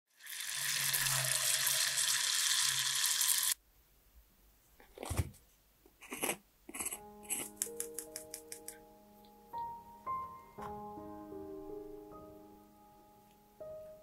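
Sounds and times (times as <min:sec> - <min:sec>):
dough sizzling in hot oil: 0:00.1 - 0:03.6.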